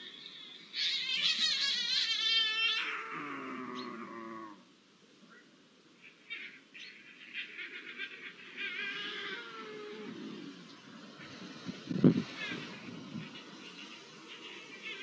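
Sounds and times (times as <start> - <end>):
lynx falling calls: 0.8 - 4.6
lynx yowling: 0.8 - 4.6, 8.5 - 10.6.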